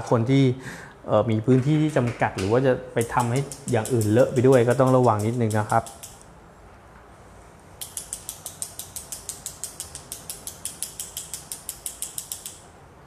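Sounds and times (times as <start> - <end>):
paintbrush tapping wooden stick: 3.0 - 6.2.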